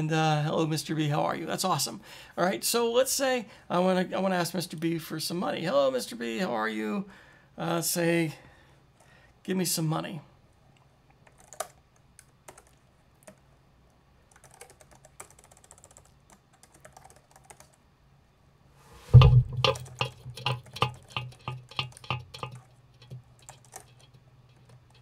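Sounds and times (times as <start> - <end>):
computer keyboard keystrokes: 11.2 - 13.4, 14.3 - 17.8, 19.6 - 25.0.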